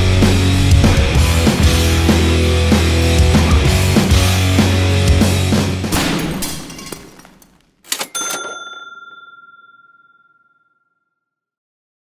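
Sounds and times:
rock music: 0.0 - 6.0
clear ringing ding: 7.9 - 11.1.

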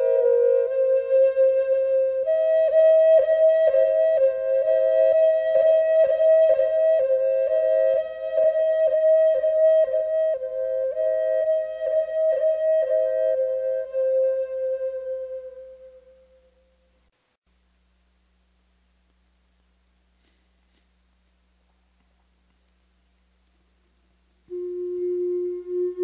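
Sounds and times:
flute-like wind melody: 0.0 - 17.0, 24.5 - 26.0.

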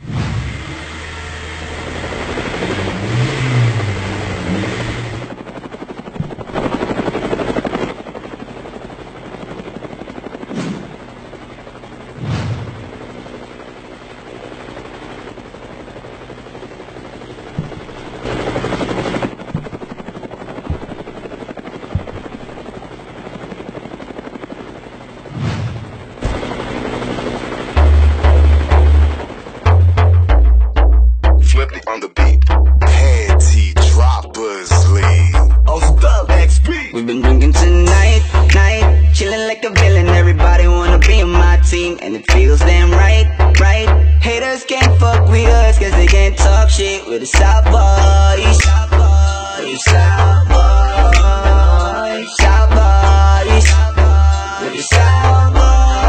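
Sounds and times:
aircraft engine noise: 0.0 - 30.9, 31.5 - 56.0
short low thuds: 17.6 - 18.0, 20.7 - 21.2, 21.9 - 22.6.

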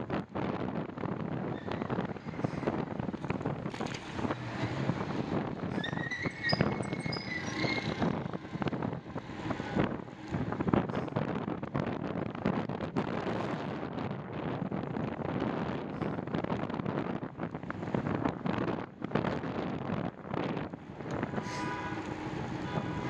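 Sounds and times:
tyre and road noise: 0.0 - 23.0
wind buffeting microphone: 0.0 - 23.0
high wavering squeal: 5.7 - 8.3.

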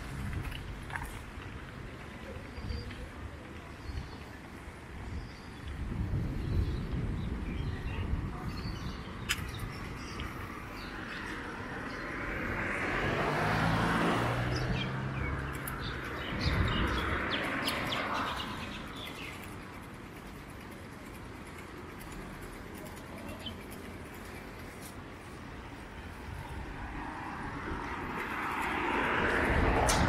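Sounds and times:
small birds chirping: 1.9 - 12.6, 14.4 - 26.5
car passing: 10.3 - 19.4, 25.3 - 30.0.

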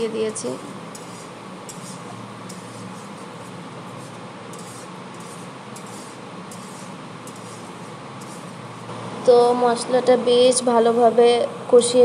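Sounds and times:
paste sizzling in oil: 0.0 - 8.9
spatula scraping pan: 0.0 - 8.9
low steady hum: 0.0 - 12.0.

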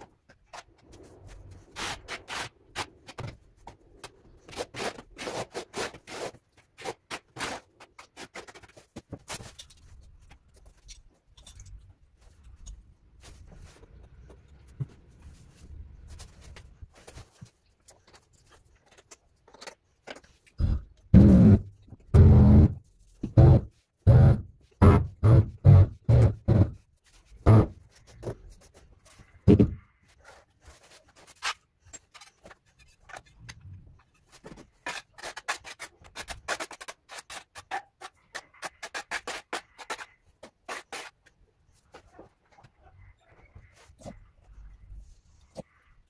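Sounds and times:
trowel scraping adhesive: 4.4 - 8.7, 34.1 - 41.4.

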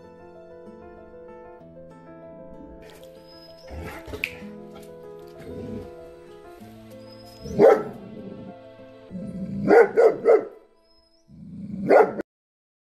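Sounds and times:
background music: 0.0 - 12.2
dog barking aggressively: 7.4 - 8.0, 9.6 - 10.5, 11.8 - 12.2.

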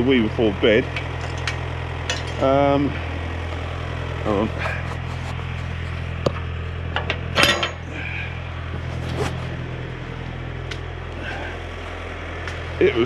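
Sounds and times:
diesel tractor engine idling: 0.0 - 13.0
metallic clicks and clanks: 0.9 - 2.5.

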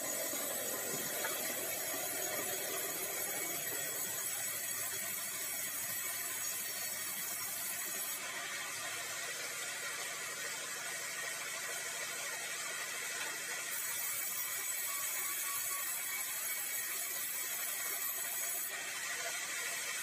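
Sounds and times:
sawmill machine hum: 0.0 - 10.5
band saw hissing through wood: 13.7 - 19.0.

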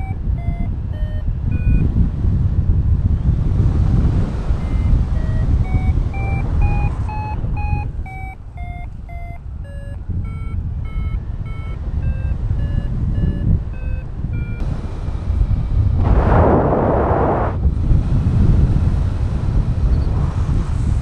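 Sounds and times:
variometer beeping: 0.0 - 2.2, 3.7 - 16.0
wind rush on microphone: 0.0 - 21.0.

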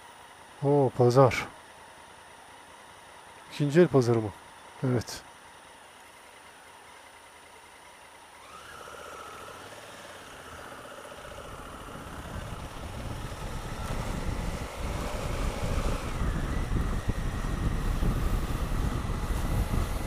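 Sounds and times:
motorcycle engine pulling away: 8.3 - 20.0
wind rushing over microphone: 11.5 - 20.0.

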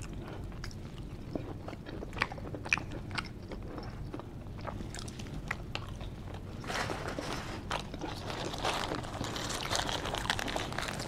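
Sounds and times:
chewing and biting food: 0.0 - 6.6
faint low hum: 0.0 - 11.0.

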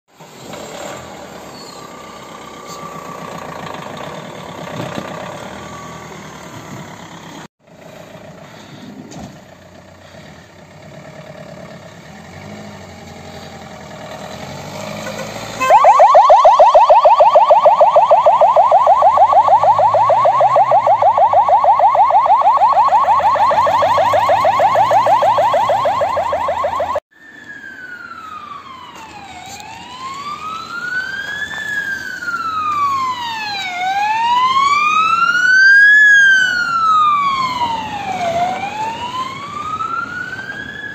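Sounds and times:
vehicle and outdoor noise: 0.1 - 40.9
electronic siren yelping: 15.6 - 40.9
wailing siren sweep: 15.6 - 40.9.

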